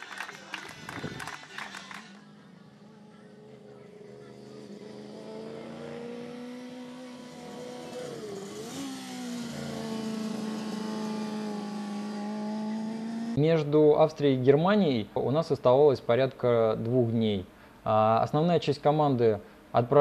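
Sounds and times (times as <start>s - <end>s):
race car engine at high revs: 2.9s - 13.4s.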